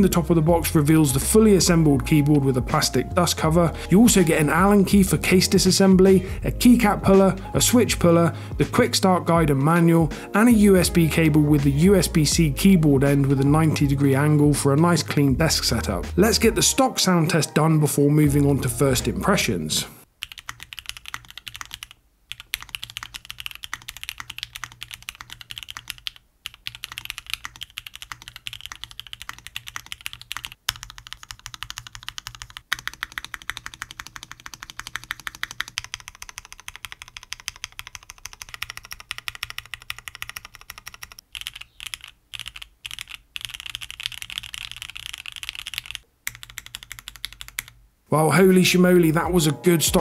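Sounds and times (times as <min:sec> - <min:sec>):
mechanical keyboard typing: 0:20.2 - 0:47.8.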